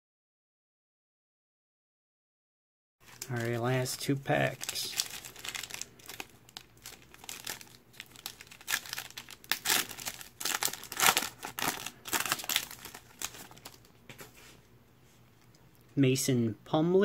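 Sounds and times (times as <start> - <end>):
foil wrapper tearing and crinkling: 3.0 - 13.9.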